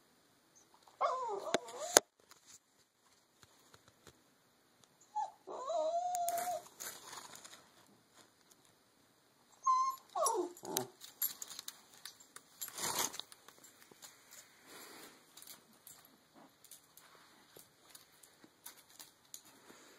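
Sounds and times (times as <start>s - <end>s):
puppy whining: 0.9s - 2.1s, 5.0s - 6.7s, 9.6s - 11.0s.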